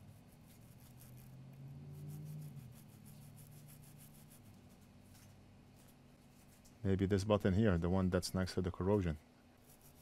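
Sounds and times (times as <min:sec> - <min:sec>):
small brush scrubbing circuit board: 0:00.0 - 0:06.8, 0:08.9 - 0:10.0
low hum: 0:00.0 - 0:09.8.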